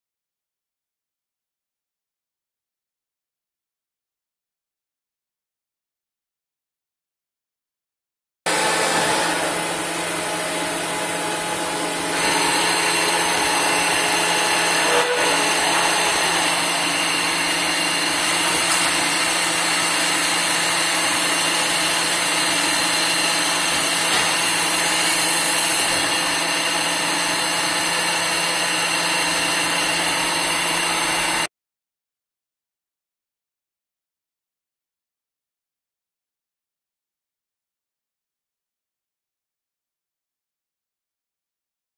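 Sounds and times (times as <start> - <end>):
lathe running and cutting metal: 8.5 - 31.5.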